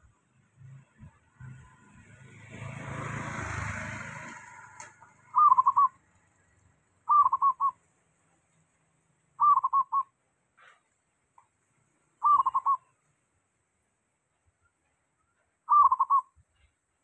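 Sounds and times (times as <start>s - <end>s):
passing vehicle: 0.0s - 9.5s
dove cooing: 5.3s - 6.0s, 7.1s - 7.8s, 9.4s - 10.0s, 12.2s - 12.9s, 15.7s - 16.3s.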